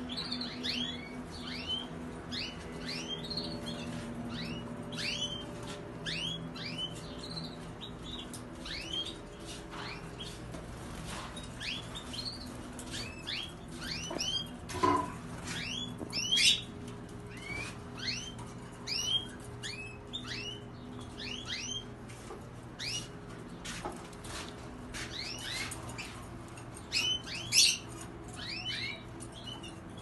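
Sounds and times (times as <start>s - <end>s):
canaries chirping: 0.0s - 30.0s.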